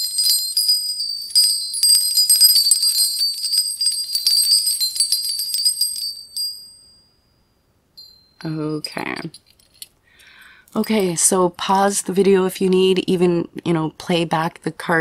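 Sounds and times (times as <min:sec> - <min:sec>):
small bells jingling: 0:00.0 - 0:11.4.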